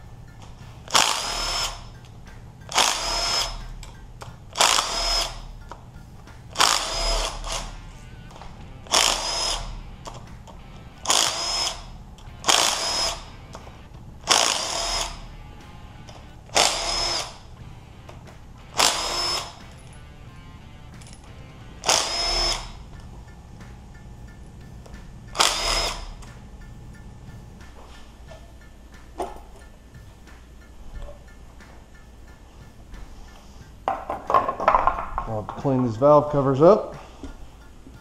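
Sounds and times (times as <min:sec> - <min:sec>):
impact wrench whining: 0:00.0 - 0:27.0.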